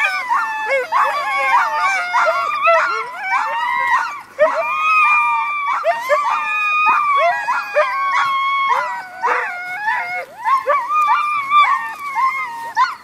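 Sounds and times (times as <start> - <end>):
sled dogs howling and yelping: 0.0 - 13.0.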